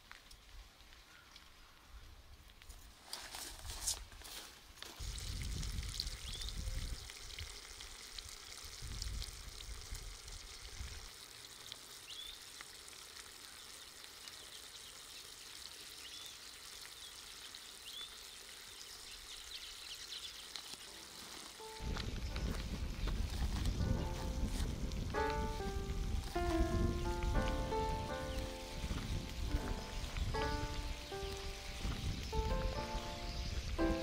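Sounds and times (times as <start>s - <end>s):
sauce simmering with sizzling hiss: 4.8s - 34.0s
high rising chirps: 25.2s - 34.0s.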